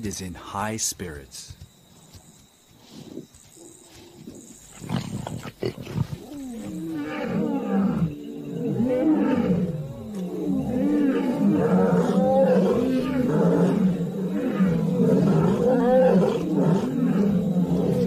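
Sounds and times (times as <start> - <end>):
lion roaring: 4.3 - 18.0.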